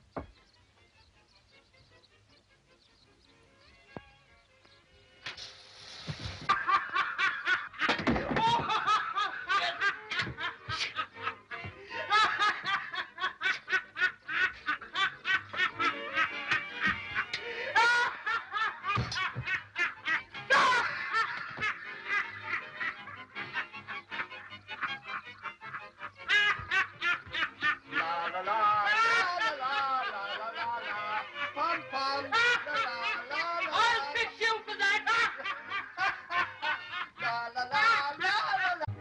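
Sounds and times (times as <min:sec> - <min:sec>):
short hissing noise: 0:05.2 - 0:06.5
man laughing hysterically: 0:06.5 - 0:37.2.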